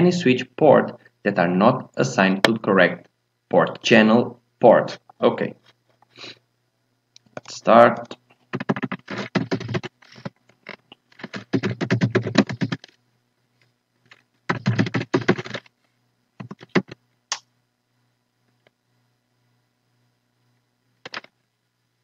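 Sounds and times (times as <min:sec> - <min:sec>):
typing on a computer keyboard: 0:08.5 - 0:10.3, 0:11.2 - 0:13.0, 0:14.5 - 0:15.7, 0:16.4 - 0:17.0.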